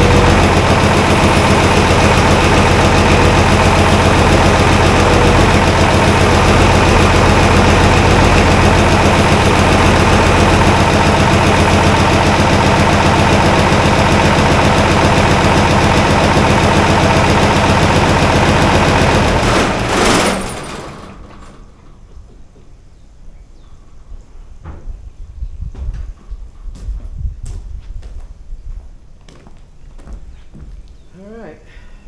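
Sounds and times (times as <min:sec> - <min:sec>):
diesel engine shutting off: 0:00.0 - 0:22.6
diesel engine idling with clatter: 0:00.0 - 0:22.8.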